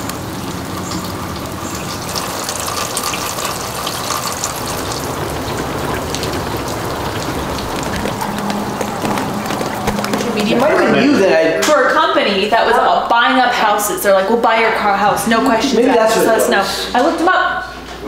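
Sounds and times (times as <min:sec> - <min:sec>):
ice pellets pattering: 0:01.9 - 0:10.7.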